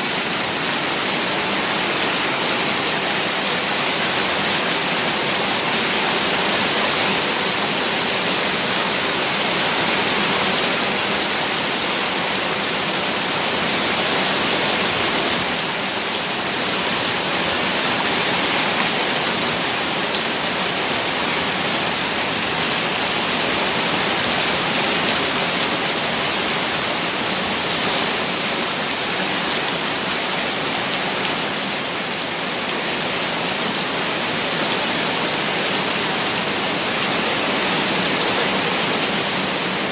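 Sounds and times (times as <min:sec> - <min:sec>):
water rushing down stone steps: 0:00.0 - 0:39.9.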